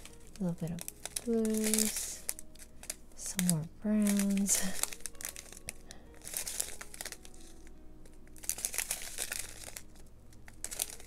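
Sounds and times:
plastic packets crinkling: 0.0 - 11.0.

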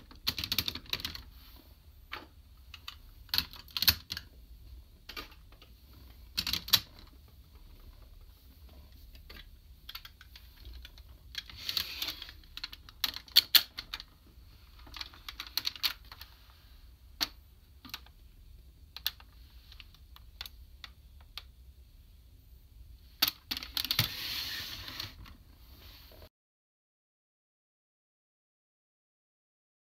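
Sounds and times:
plastic toy clicking and rattling: 2.7 - 4.3, 9.3 - 14.1, 14.8 - 16.3.

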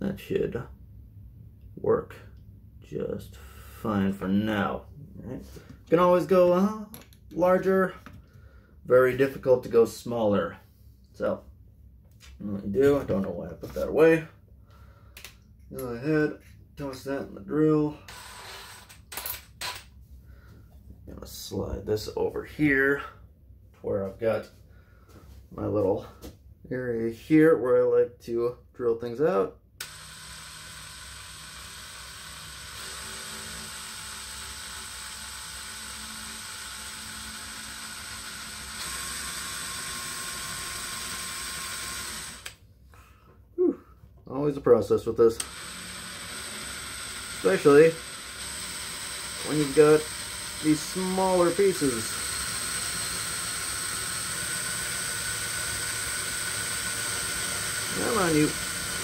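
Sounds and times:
electric drill boring wood: 18.1 - 19.0, 29.8 - 42.6, 45.4 - 59.0.

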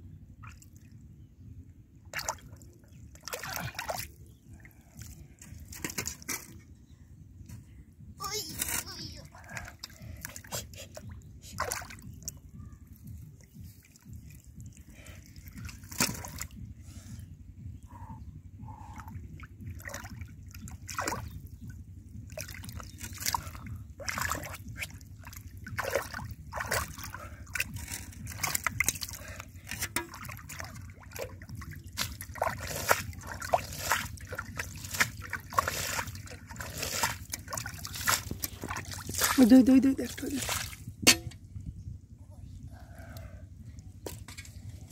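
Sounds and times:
steady low rumble: 0.0 - 44.9
hands splashing in shallow water: 22.3 - 39.5.

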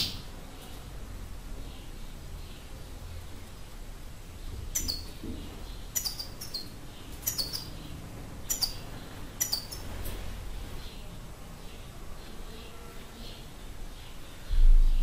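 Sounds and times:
goldfinch calling: 6.0 - 7.7.

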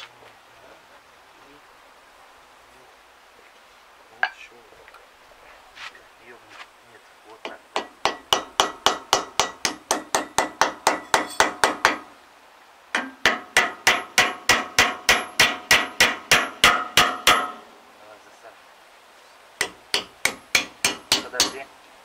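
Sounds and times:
hammer striking metal: 7.5 - 12.1, 12.9 - 17.7, 19.6 - 21.7.

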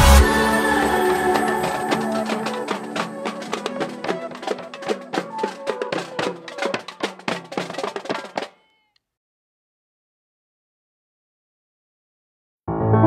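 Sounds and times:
marching drumline playing: 0.0 - 8.6.

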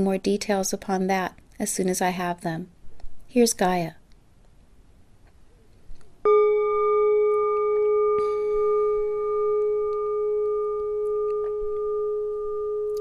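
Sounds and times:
singing bowl ringing: 6.3 - 13.0.

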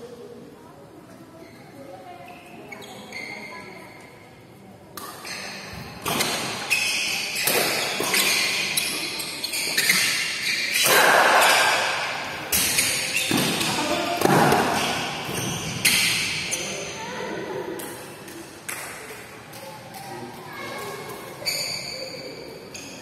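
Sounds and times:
rackets hitting shuttlecock: 5.0 - 16.5.

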